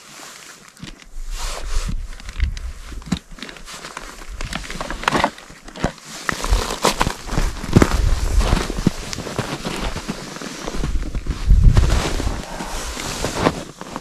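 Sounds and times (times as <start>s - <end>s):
crinkling gear from fabric backpack: 0.0s - 14.0s
boots crunching on snow: 6.0s - 14.0s.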